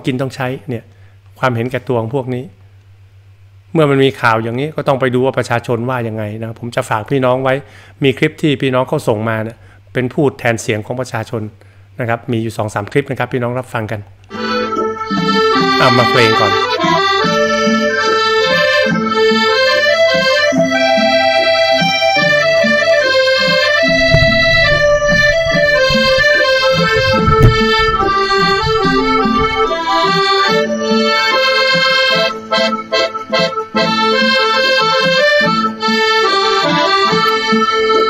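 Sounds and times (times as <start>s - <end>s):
accordion melody: 14.2s - 38.0s
low rumble: 23.7s - 30.4s.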